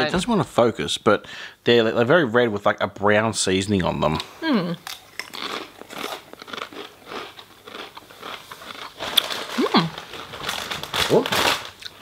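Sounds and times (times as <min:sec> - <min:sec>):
person humming: 0:04.4 - 0:04.8
chewing crunchy corn chips: 0:04.8 - 0:12.0.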